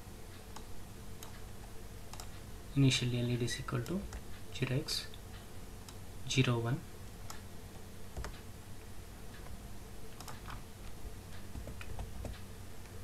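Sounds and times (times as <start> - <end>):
faint steady hum: 0.0 - 13.0
keyboard and mouse clicks: 2.1 - 2.4, 8.2 - 8.4, 9.4 - 10.6, 11.4 - 12.5.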